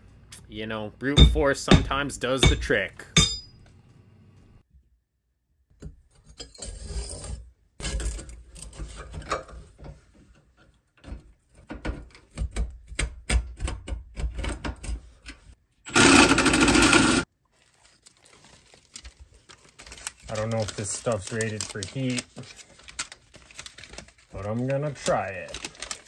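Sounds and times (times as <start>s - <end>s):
metal pipe scraping against wall: 6.2s - 9.8s.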